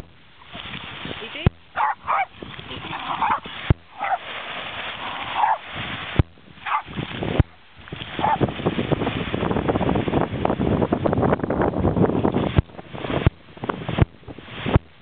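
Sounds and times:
surf: 0:00.0 - 0:15.0
wind on microphone: 0:00.0 - 0:15.0
dogs barking: 0:01.7 - 0:04.3, 0:05.2 - 0:05.6, 0:06.6 - 0:06.9, 0:08.2 - 0:08.4.

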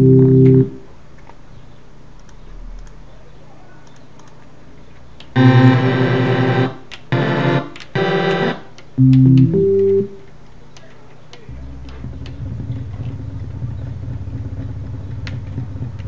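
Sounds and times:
synthesized keyboard chords: 0:00.0 - 0:00.9, 0:05.4 - 0:10.2, 0:11.5 - 0:16.0
faint clicks: 0:02.1 - 0:03.0, 0:03.8 - 0:05.4.

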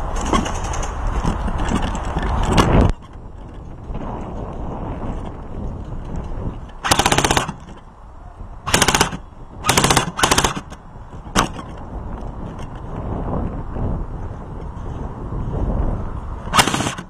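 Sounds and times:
airsoft gun bursts: 0:06.8 - 0:07.6, 0:08.7 - 0:10.7, 0:16.5 - 0:17.0.

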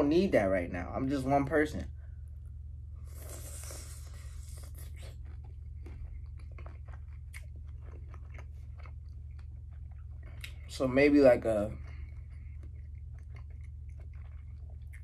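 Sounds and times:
low hum: 0:00.0 - 0:15.0
chewing with wet mouth clicks: 0:03.2 - 0:15.0.

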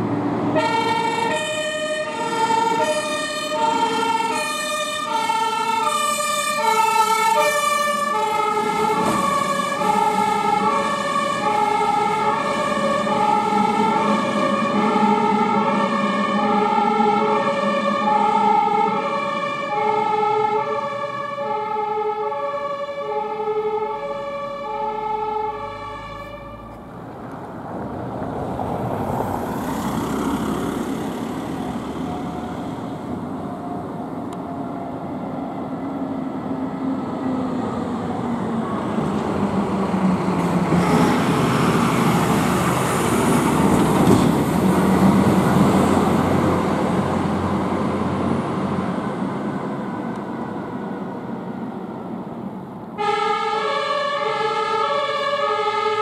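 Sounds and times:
truck engine passing: 0:00.0 - 0:56.0
two-tone siren: 0:00.5 - 0:26.8, 0:31.8 - 0:38.8, 0:40.7 - 0:42.3, 0:53.0 - 0:56.0.

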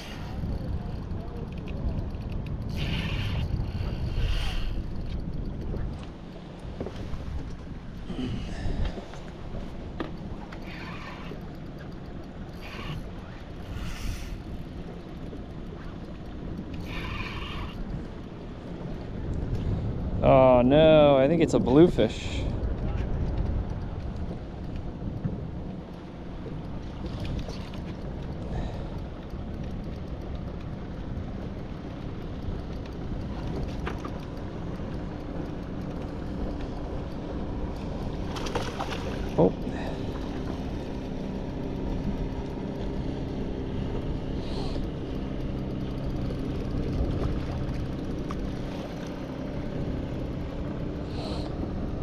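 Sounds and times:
fishing reel cranking: 0:00.0 - 0:05.7, 0:10.2 - 0:18.3
faint ticks: 0:00.0 - 0:19.8, 0:22.6 - 0:41.1
wind rumbling on microphone: 0:00.0 - 0:52.0.

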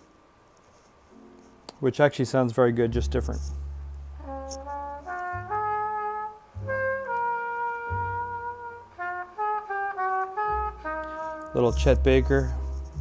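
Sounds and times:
low bass notes: 0:02.8 - 0:06.0, 0:06.6 - 0:09.0, 0:10.5 - 0:13.0
trumpet playing slow melody: 0:03.0 - 0:13.0.

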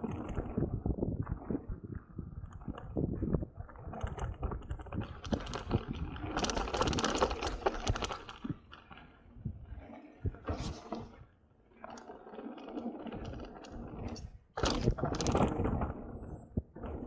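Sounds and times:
bike rattling over bumps: 0:02.6 - 0:08.9, 0:12.8 - 0:17.0.

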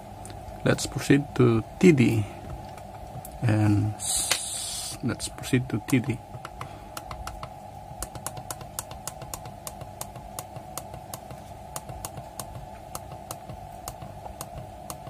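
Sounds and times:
steady hum: 0:00.0 - 0:15.0
push buttons clicking: 0:05.8 - 0:15.0.

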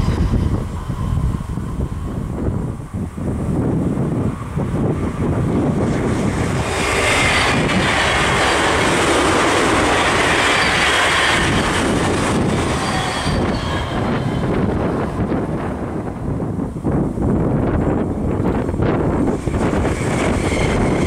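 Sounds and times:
electric train passing: 0:00.0 - 0:21.0
high wheel squeal: 0:06.7 - 0:15.0, 0:19.5 - 0:21.0.

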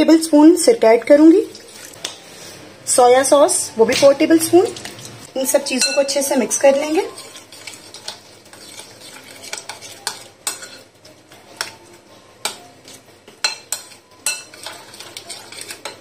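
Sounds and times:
spoon stirring wet paste: 0:05.8 - 0:16.0
spoon clinking against glass: 0:13.4 - 0:16.0.

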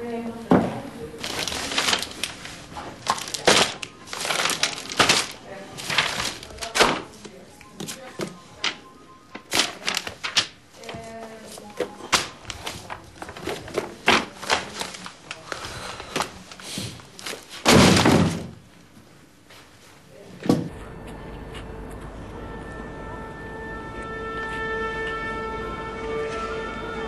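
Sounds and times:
plastic folder and papers rustling: 0:01.2 - 0:18.5.

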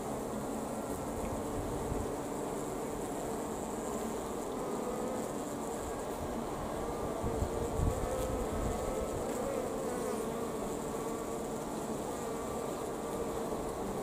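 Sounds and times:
honeybees buzzing: 0:00.0 - 0:14.0.

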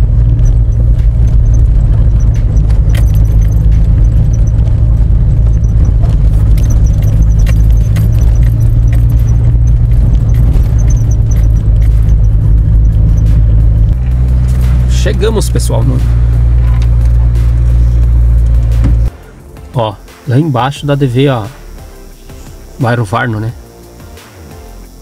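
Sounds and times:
car rattling on dirt road: 0:00.0 - 0:19.1
road noise inside car: 0:00.0 - 0:19.1
car engine drone: 0:00.0 - 0:25.0.

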